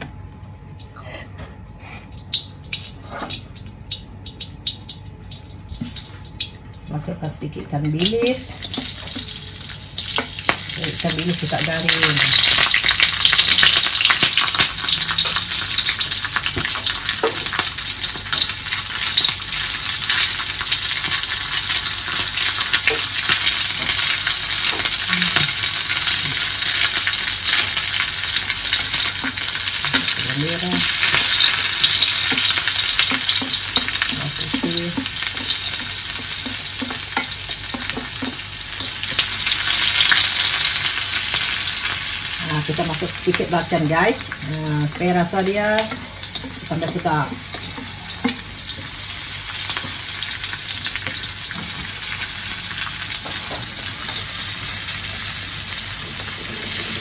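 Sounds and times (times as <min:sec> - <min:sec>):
fish frying in hot oil: 0:08.0 - 0:57.0
spatula stirring in wok: 0:31.1 - 0:40.1.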